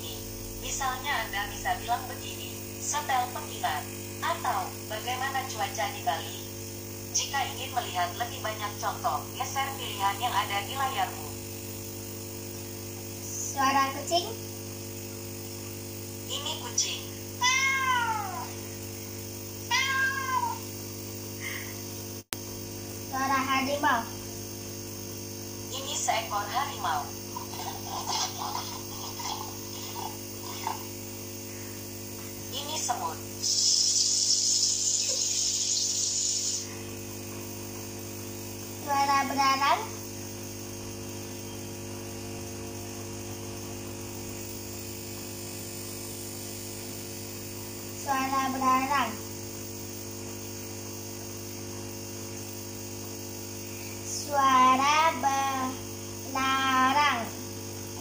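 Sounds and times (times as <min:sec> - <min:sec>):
low electrical hum: 0:00.0 - 0:58.0
cat meowing through phone speaker: 0:17.4 - 0:18.5, 0:19.7 - 0:20.6.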